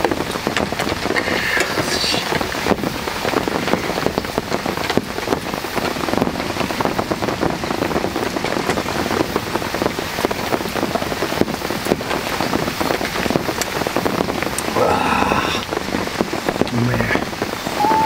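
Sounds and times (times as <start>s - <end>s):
heavy rain on a tarp: 0.0s - 18.0s.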